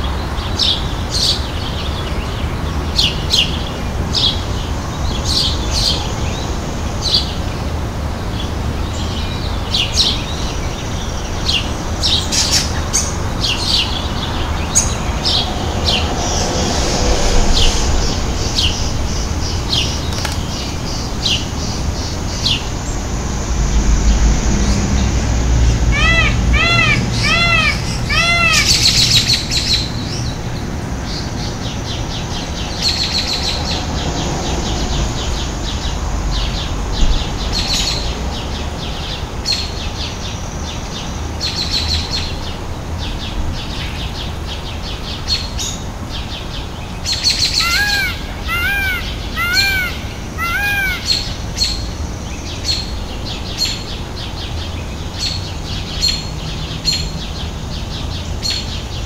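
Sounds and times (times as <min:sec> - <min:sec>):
small birds chirping: 0:17.2 - 0:25.1, 0:25.9 - 0:30.4, 0:35.2 - 0:59.0
peafowl calling: 0:25.9 - 0:29.5, 0:47.4 - 0:51.7.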